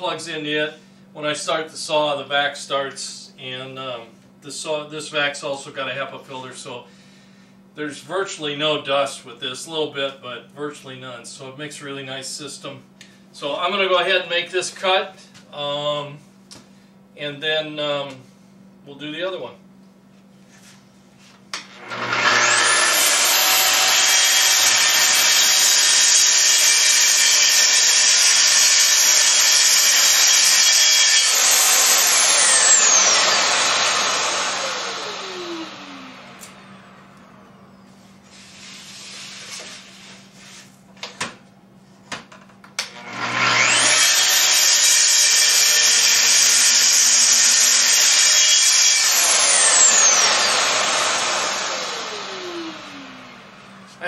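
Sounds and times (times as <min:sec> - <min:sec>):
track saw cutting wood: 0:21.6 - 0:37.1, 0:42.8 - 0:54.0
dust extractor running: 0:21.6 - 0:37.5, 0:42.8 - 0:54.0.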